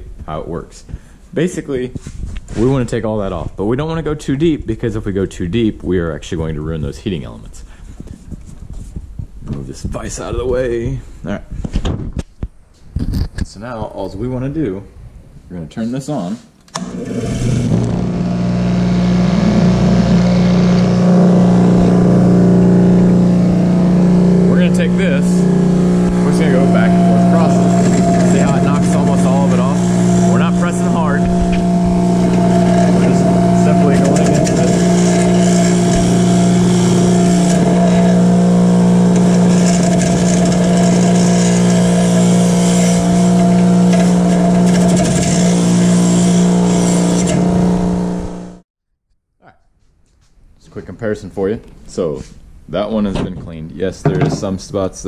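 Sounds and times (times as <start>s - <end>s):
bench grinder motor whirring: 16.8s - 48.6s
wire brush scratching: 19.1s - 48.4s.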